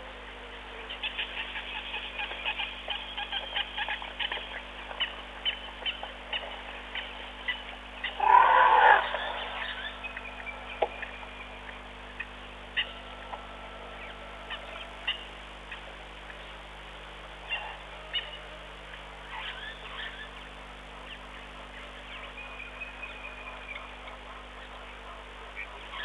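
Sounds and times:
birds chirping and whistling: 0:00.9 - 0:16.6, 0:17.4 - 0:24.7
harsh animal call: 0:08.0 - 0:10.5.

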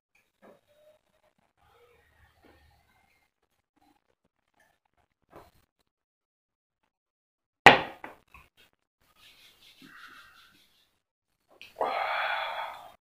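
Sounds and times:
breathy exhale: 0:11.8 - 0:13.0.

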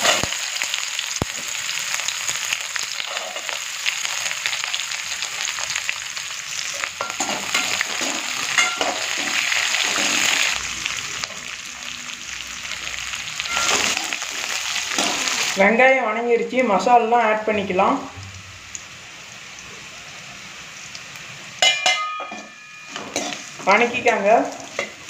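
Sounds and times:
onions sizzling in hot oil: 0:00.0 - 0:25.0
spoon scraping and clicking on pan: 0:21.6 - 0:23.5.

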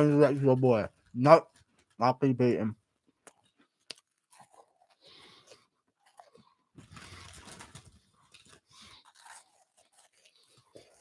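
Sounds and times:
crunchy snack being chewed: 0:03.3 - 0:11.0.

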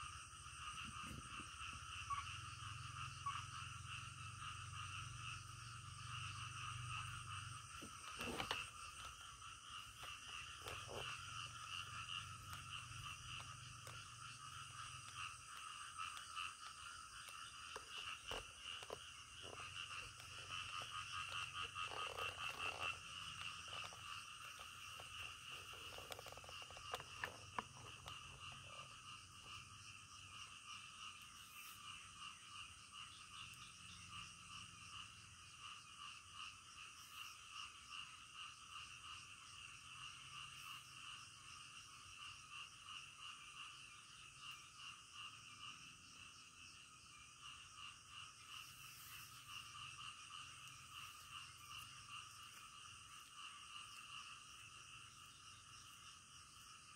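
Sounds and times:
frogs calling: 0:00.0 - 0:56.9.

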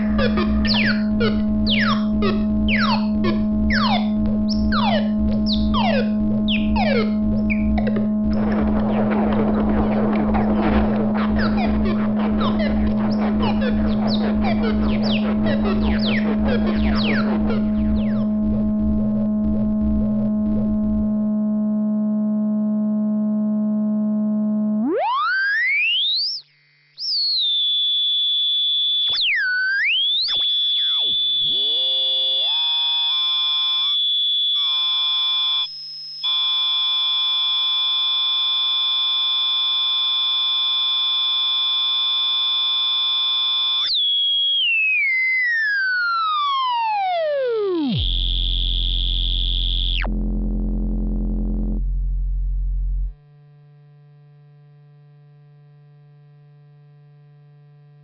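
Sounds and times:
faint hum: 0:00.0 - 0:21.8
low buzzy drone: 0:00.0 - 0:24.8, 0:48.0 - 0:53.3
high synthesizer tone gliding down: 0:00.0 - 0:26.4, 0:43.4 - 0:53.2
synthesizer pitch sweeps: 0:00.0 - 0:26.5.

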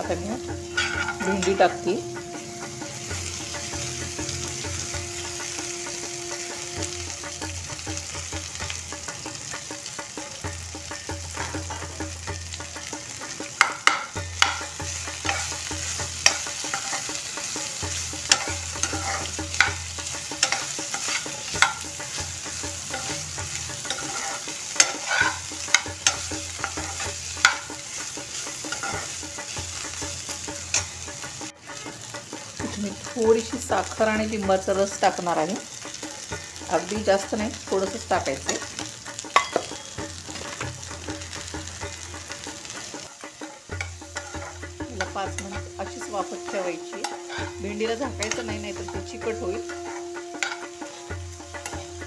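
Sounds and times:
spoon scraping metal pan: 0:00.0 - 0:07.0, 0:13.5 - 0:32.8, 0:42.2 - 0:52.0
okra sizzling in hot oil: 0:00.0 - 0:52.0.

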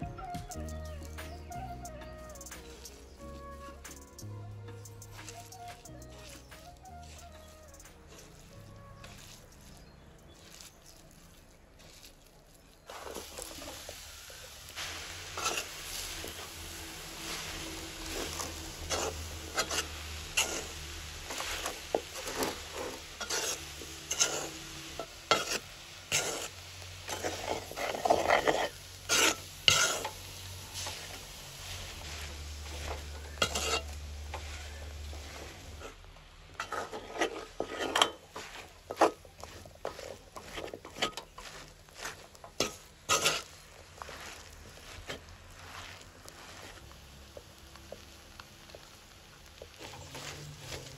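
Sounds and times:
beans rustling: 0:00.0 - 0:50.9
ladle scraping metal pan: 0:14.7 - 0:44.4.

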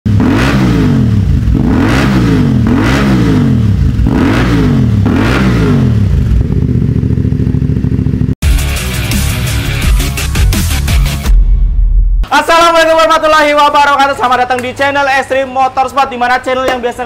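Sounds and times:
motorcycle engine revving and idling: 0:00.1 - 0:08.6.

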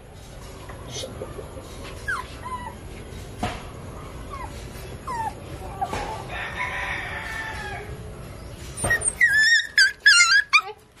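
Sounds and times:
puppies whining: 0:00.9 - 0:03.2, 0:03.9 - 0:06.3, 0:08.6 - 0:11.0
rooster crowing: 0:06.2 - 0:08.1.

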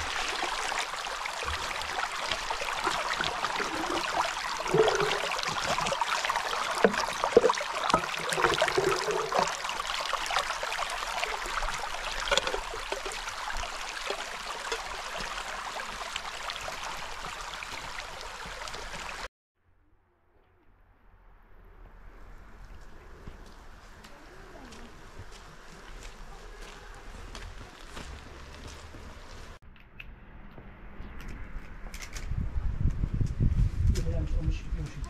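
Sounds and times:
stream splashing over rocks: 0:00.0 - 0:19.3.

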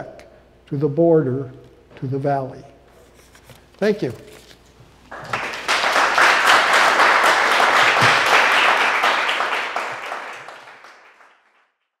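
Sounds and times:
audience applauding: 0:05.1 - 0:11.7.

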